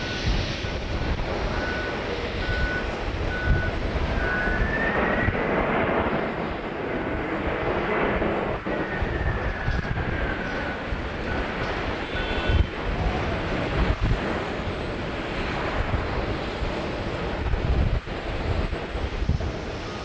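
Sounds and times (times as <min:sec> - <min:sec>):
gusty wind on microphone: 0:00.0 - 0:20.0
jet engines whining: 0:00.0 - 0:20.0.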